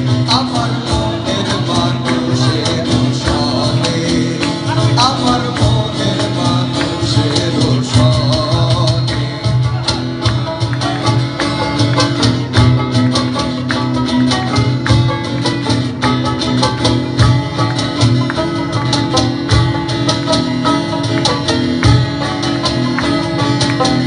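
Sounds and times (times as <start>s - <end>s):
guitars strummed: 0.0s - 24.0s
hand-struck cajon beat: 0.0s - 24.0s.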